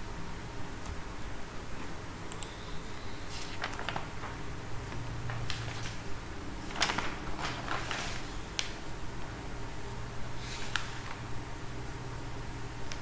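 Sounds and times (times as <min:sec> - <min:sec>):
low hum and hiss: 0:00.0 - 0:13.0
computer mouse clicks: 0:02.3 - 0:02.6.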